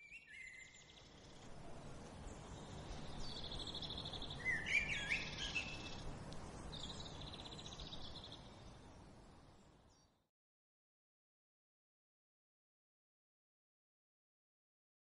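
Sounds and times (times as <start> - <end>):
bird chirps: 0.0 - 1.4, 2.4 - 6.0
outdoor background hiss: 0.0 - 10.3.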